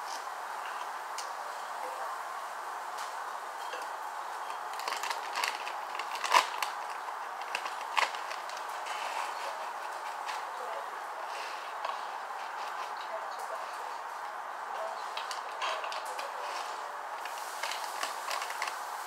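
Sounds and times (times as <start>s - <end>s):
steady hiss: 0.0s - 19.0s
sharp clicks and crackles: 3.0s - 10.6s, 15.0s - 18.9s
plastic bag crinkling: 4.4s - 13.2s, 17.2s - 19.0s.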